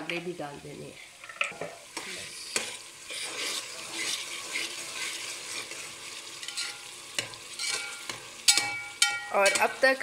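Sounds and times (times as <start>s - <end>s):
vegetables sizzling in oil: 0.0s - 10.0s
metal spoon scraping pot: 2.5s - 9.8s
spoon knocking on pot: 6.5s - 9.8s.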